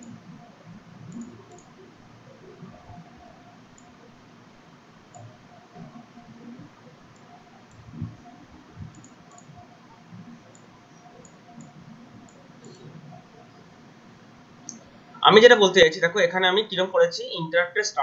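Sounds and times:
room hiss: 0:00.0 - 0:18.0
computer mouse clicks: 0:01.0 - 0:01.8, 0:02.6 - 0:04.1, 0:05.1 - 0:13.6.

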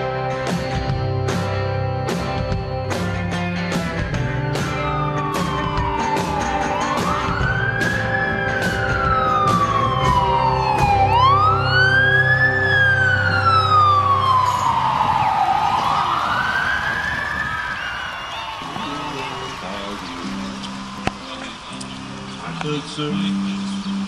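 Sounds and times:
siren slow wail: 0:04.5 - 0:19.6.

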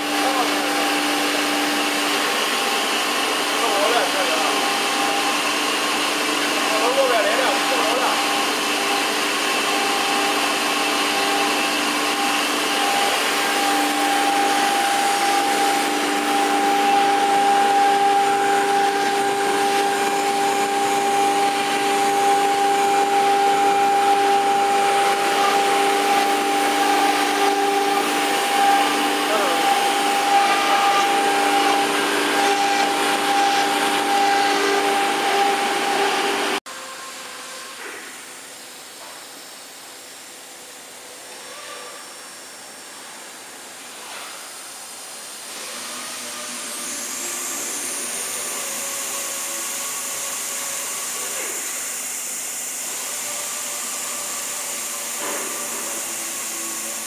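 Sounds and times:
machine hum: 0:00.0 - 0:37.1
wood router whirring: 0:00.0 - 0:57.0.

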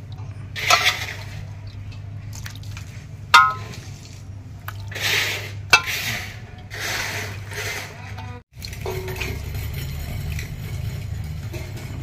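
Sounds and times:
low steady hum: 0:00.0 - 0:11.9
ladle clinking on metal: 0:03.4 - 0:03.8
soft scrape and pour: 0:03.7 - 0:08.0.

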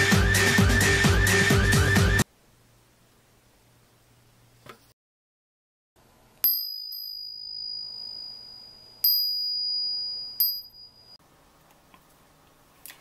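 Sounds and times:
small brass bell ringing: 0:06.4 - 0:11.2.

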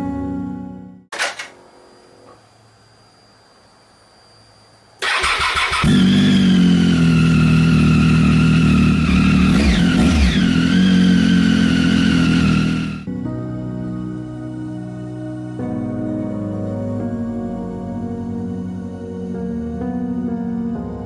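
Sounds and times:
motorcycle starter cranking: 0:01.1 - 0:01.5, 0:05.0 - 0:06.6
motorcycle engine running: 0:05.2 - 0:13.1.

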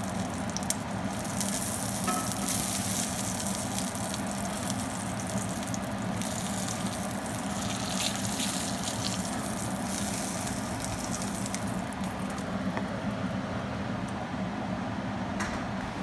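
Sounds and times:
steak sizzling in a skillet: 0:00.0 - 0:12.4.

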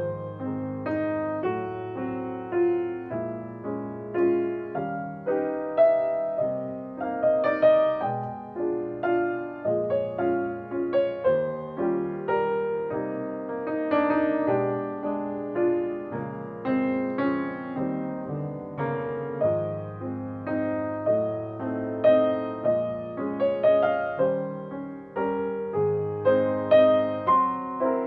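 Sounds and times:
solo piano music: 0:00.0 - 0:28.0.

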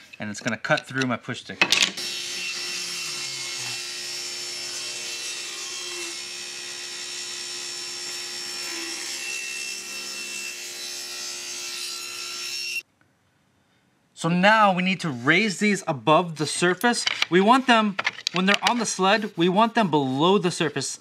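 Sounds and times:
table saw cutting wood: 0:02.0 - 0:12.8.

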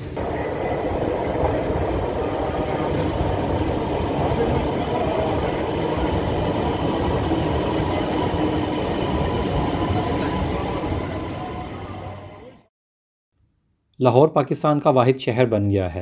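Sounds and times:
train wheels rumbling on rails: 0:00.0 - 0:12.6
faint high whine: 0:00.0 - 0:12.7.

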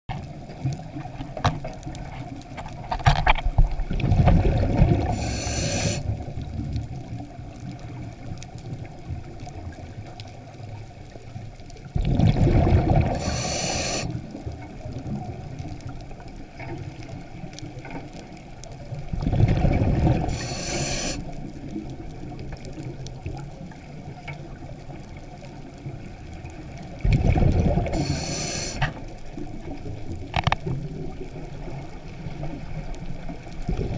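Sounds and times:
underwater water noise: 0:00.1 - 0:33.9
exhaled bubbles rushing: 0:02.8 - 0:08.1, 0:11.8 - 0:15.6, 0:18.8 - 0:22.4, 0:26.6 - 0:30.1, 0:30.8 - 0:33.9.

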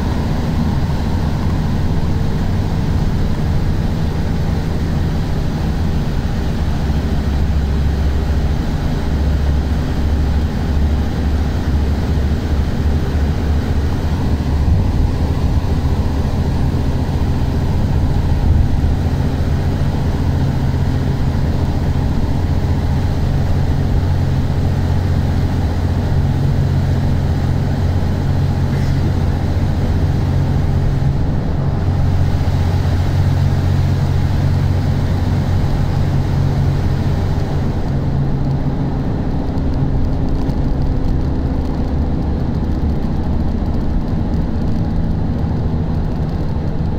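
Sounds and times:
vehicle engine and tyre rumble: 0:00.0 - 0:46.9.

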